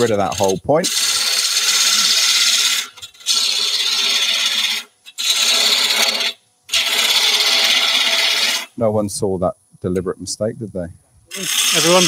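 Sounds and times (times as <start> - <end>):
gouge scraping wood on lathe: 0.0 - 8.7, 11.4 - 12.0.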